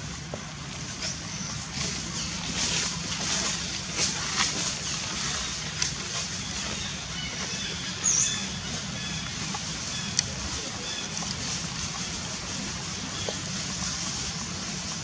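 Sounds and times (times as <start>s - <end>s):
dry leaves crackling: 0.0s - 15.0s.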